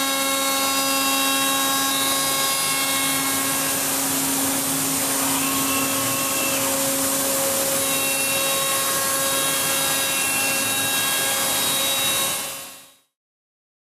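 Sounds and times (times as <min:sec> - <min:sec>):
milling machine whine: 0:00.0 - 0:13.0
hiss: 0:01.6 - 0:12.3.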